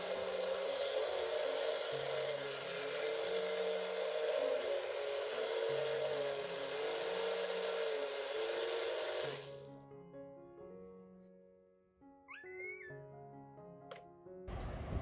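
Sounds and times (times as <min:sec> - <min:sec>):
juicer motor whining: 0:00.0 - 0:09.7.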